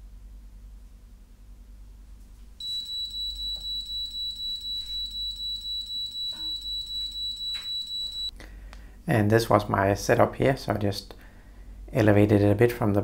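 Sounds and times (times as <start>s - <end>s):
pulsing shrill buzzer tone: 2.6s - 8.3s.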